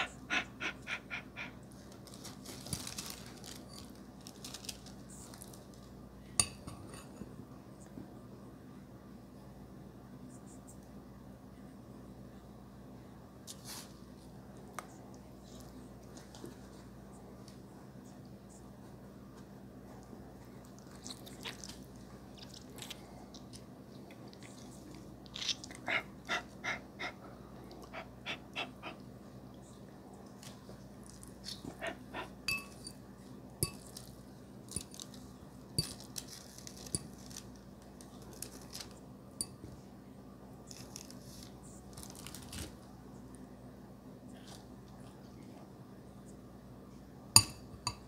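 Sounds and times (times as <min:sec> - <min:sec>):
chewing noodles: 0:20.6 - 0:26.8
metal fork clicking on glass bowl: 0:32.5 - 0:32.8.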